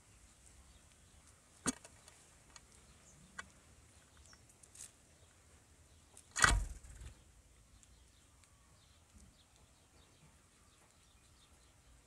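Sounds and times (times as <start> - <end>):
bird wings fluttering: 6.5 - 7.2.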